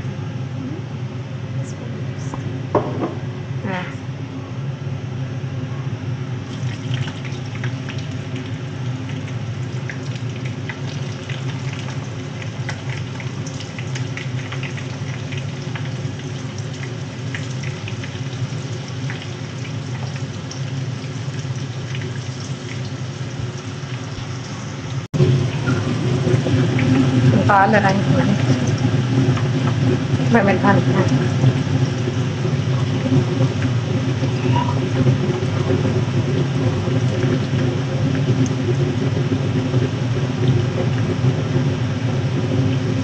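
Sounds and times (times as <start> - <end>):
low hum: 0.0 - 43.0
food sizzling in hot oil: 6.4 - 39.5.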